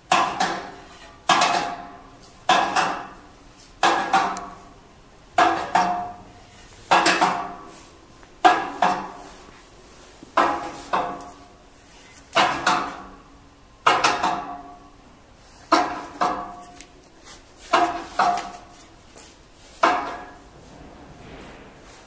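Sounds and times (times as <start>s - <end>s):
metal carousel clanking: 0.0s - 4.8s, 5.4s - 9.4s, 10.4s - 13.2s, 17.7s - 18.8s, 19.7s - 22.0s.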